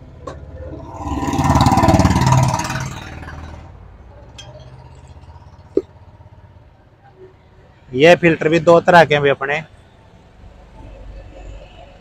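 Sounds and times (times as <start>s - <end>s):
vehicle engine passing by: 0.5s - 3.8s.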